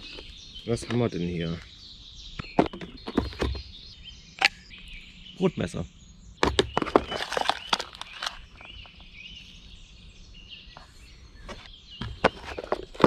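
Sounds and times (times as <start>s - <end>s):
faint birds chirping: 0.0s - 13.0s
knocks and rustling of unpacking: 6.4s - 8.8s, 11.5s - 13.0s.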